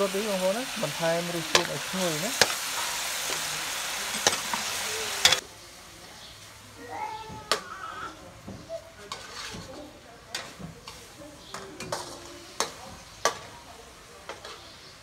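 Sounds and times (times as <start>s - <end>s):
metal utensil scraping a wok: 0.0s - 5.4s, 9.1s - 11.2s, 11.8s - 13.5s
quiet sizzle: 0.0s - 15.0s.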